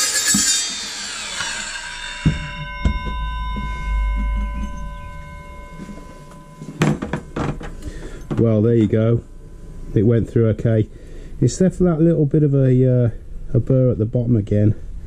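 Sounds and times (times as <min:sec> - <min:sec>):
circular saw spinning down: 0:00.0 - 0:06.6
metallic ringing: 0:00.0 - 0:12.1
metal clunks: 0:02.2 - 0:08.6.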